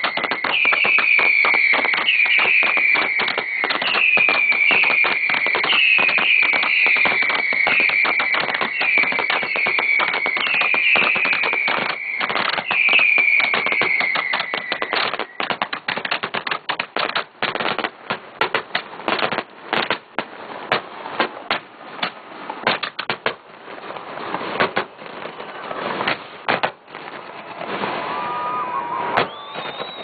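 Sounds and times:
fireworks falling whistle: 0:00.0 - 0:17.1, 0:24.4 - 0:30.0
fireworks pops and crackles: 0:00.0 - 0:30.0.

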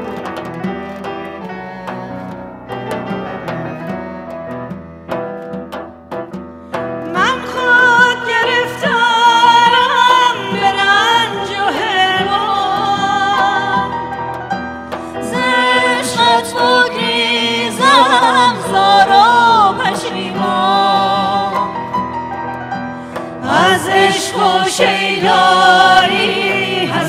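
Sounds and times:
instrumental accompaniment: 0:00.0 - 0:27.0
woman singing with vibrato: 0:07.1 - 0:14.2, 0:15.2 - 0:22.0, 0:23.4 - 0:27.0.

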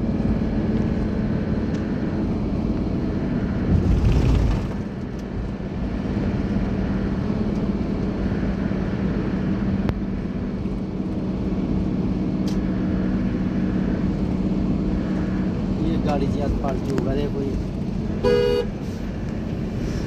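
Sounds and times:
car engine hum: 0:00.0 - 0:20.0
loud low rumble: 0:00.9 - 0:07.3.

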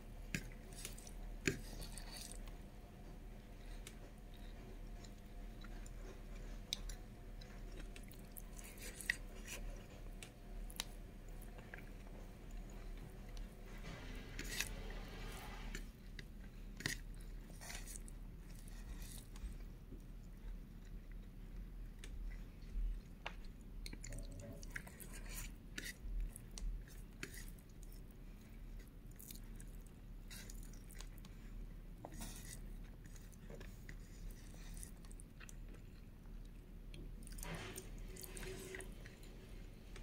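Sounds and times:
chewing food: 0:00.2 - 0:40.0.

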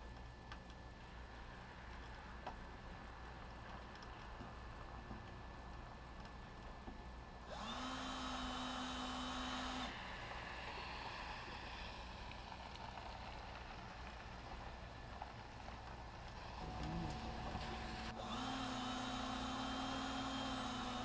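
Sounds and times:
cordless drill boring: 0:07.5 - 0:10.1, 0:16.6 - 0:21.0.

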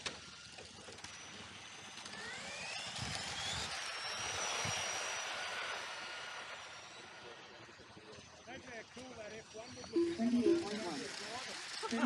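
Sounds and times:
rc car electric motor whine: 0:00.0 - 0:07.8.

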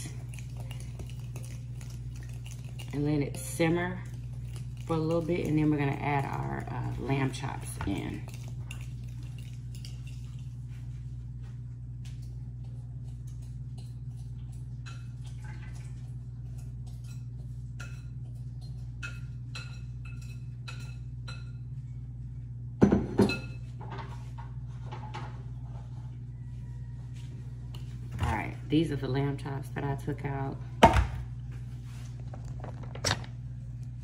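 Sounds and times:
dishes and utensils clinking: 0:16.5 - 0:21.8, 0:22.8 - 0:25.4
dishes clattering: 0:22.8 - 0:25.4.

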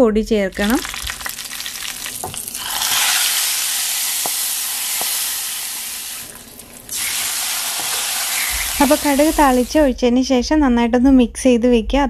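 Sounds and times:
hot fat sizzling in liquid: 0:00.5 - 0:09.9.

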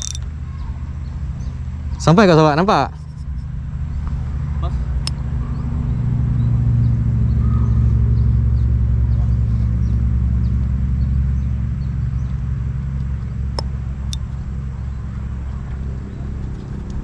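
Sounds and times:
sharp clicks: 0:00.0 - 0:00.3
engine rumble: 0:00.0 - 0:17.0.

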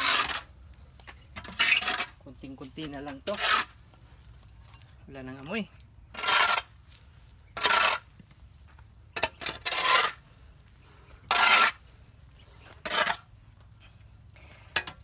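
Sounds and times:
shovel scraping hard floor: 0:07.6 - 0:08.0, 0:09.2 - 0:10.2, 0:11.3 - 0:11.8, 0:12.8 - 0:13.2.

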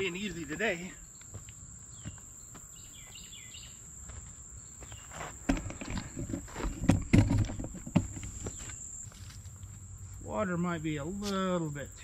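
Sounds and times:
high-pitched insect drone: 0:00.0 - 0:06.2, 0:08.0 - 0:12.0
footsteps on dirt: 0:00.0 - 0:09.9
faint insect chirps: 0:00.0 - 0:12.0
rustling thumps: 0:05.1 - 0:09.5.

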